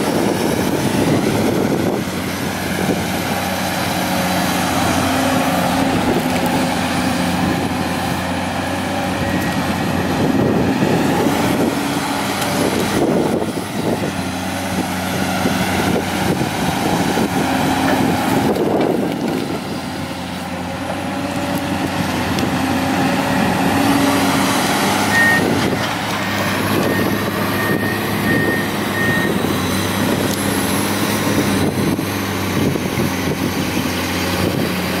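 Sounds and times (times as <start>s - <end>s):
excavator diesel engine running: 0.0s - 35.0s
high beeps: 25.0s - 25.5s.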